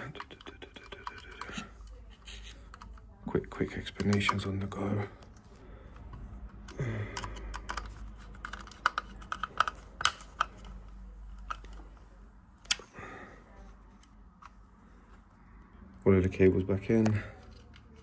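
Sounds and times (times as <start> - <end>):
screwdriver clicking and scraping: 0.0 - 3.0, 6.5 - 11.8.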